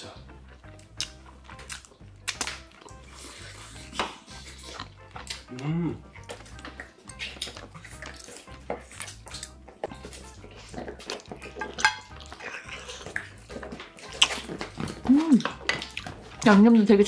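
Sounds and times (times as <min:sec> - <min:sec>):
wet chewing: 0:00.0 - 0:17.0
person humming: 0:05.5 - 0:06.0, 0:15.0 - 0:15.4.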